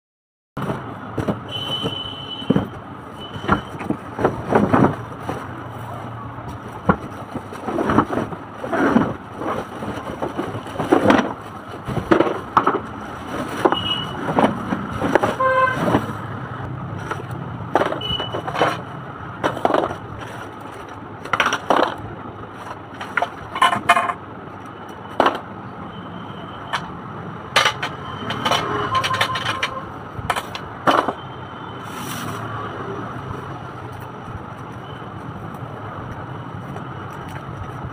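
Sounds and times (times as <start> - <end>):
plastic parts knocking: 0.6 - 5.6, 6.5 - 16.2, 17.0 - 24.2, 25.1 - 25.5, 27.5 - 31.2
cardboard and plastic rustling: 0.6 - 16.3, 16.9 - 23.9.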